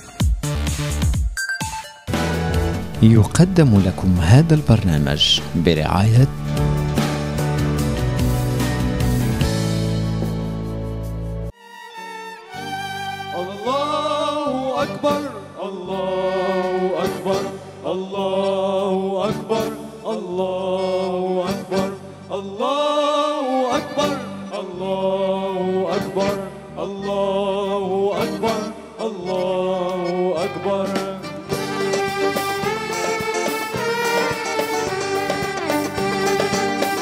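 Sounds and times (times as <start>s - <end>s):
instrumental accompaniment with bass: 2.1s - 11.5s, 26.0s - 37.0s
young men singing into microphones: 13.4s - 31.3s.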